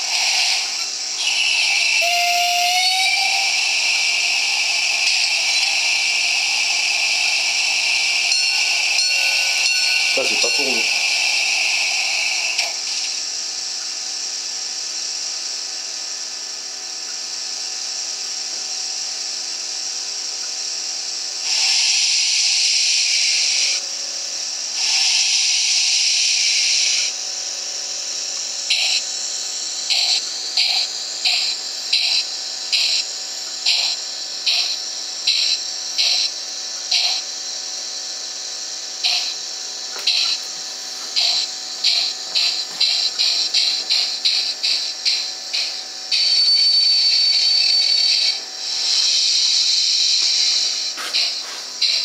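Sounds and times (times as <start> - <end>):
bursts of steam: 0.0 - 13.1
steam hiss: 0.0 - 13.3, 21.4 - 23.8, 24.7 - 27.2, 28.6 - 38.4, 39.0 - 52.0
steam locomotive exhaust chuffs: 0.0 - 13.3, 21.4 - 23.8, 24.7 - 27.2, 28.3 - 38.4, 39.0 - 52.0.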